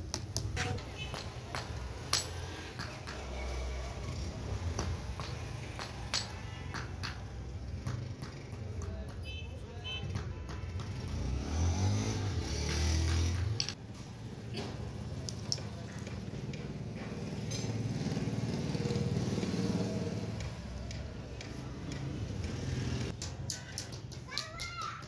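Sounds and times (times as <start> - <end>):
hammer tapping steel chisel on stone: 0.0 - 3.6, 4.2 - 11.4.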